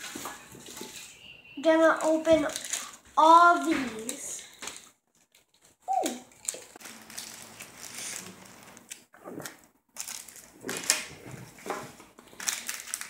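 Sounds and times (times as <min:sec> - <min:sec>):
foil packs crinkling: 0:01.9 - 0:09.1, 0:10.0 - 0:13.0.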